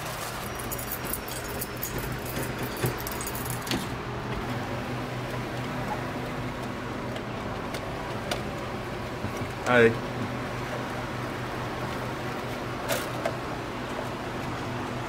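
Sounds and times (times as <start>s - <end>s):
steady low hum: 0.2s - 15.0s
light metallic clinks: 0.3s - 3.8s.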